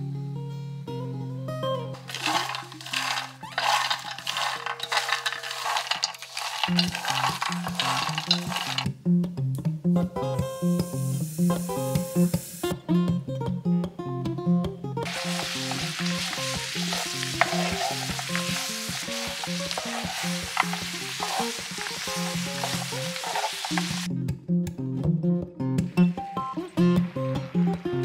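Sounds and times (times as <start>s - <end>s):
spatula scraping a pan: 2.0s - 8.8s, 15.1s - 24.1s
peanuts sizzling in a pan: 2.0s - 8.9s, 10.6s - 12.7s, 15.0s - 24.1s.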